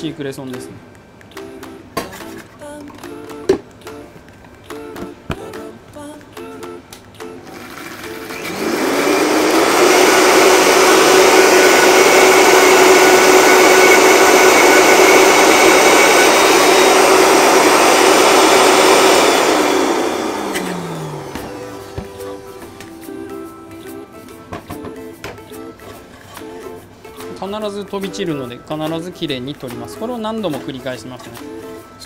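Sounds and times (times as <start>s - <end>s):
blender motor whining: 7.4s - 22.4s.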